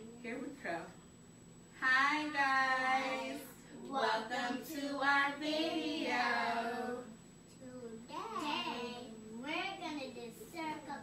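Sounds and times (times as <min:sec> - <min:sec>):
girls and woman singing: 0:01.8 - 0:07.2.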